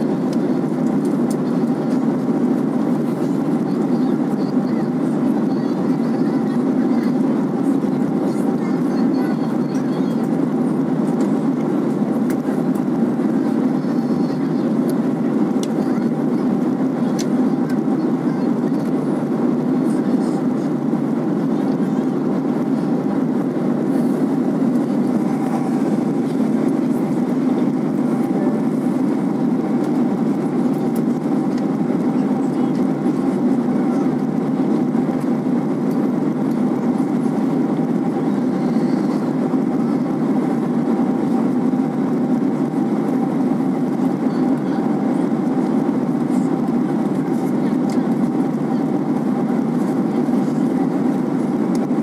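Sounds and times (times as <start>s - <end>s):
jet engines and airflow rushing: 0.0s - 52.0s.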